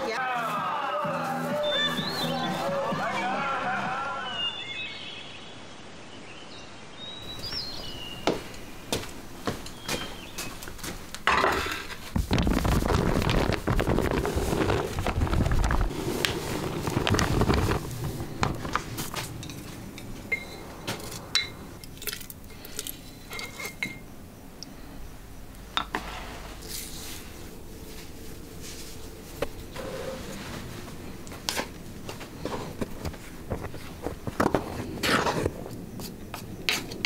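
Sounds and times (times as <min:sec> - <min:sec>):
basin and utensils scraping: 0:13.8 - 0:24.0.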